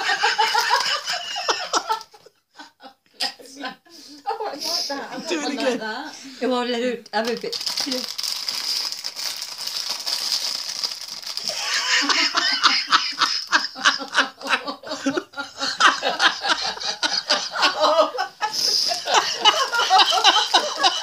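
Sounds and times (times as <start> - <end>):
people laughing: 0.0 - 6.0, 11.4 - 21.0.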